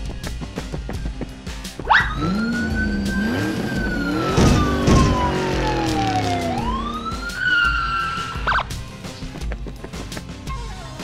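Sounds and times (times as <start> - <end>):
car engine running: 0.7 - 8.8
police siren wailing: 1.9 - 8.6.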